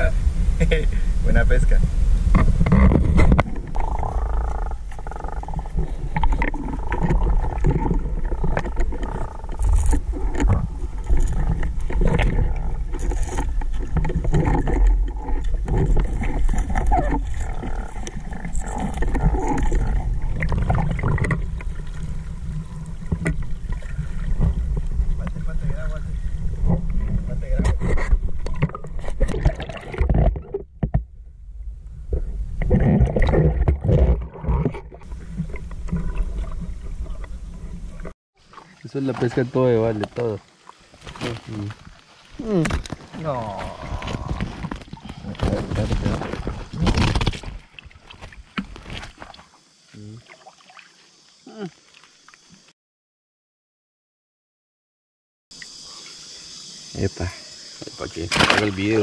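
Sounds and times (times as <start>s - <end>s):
muffled underwater sloshing: 0.0s - 30.9s, 31.6s - 51.2s
steady low rumble: 31.0s - 32.8s.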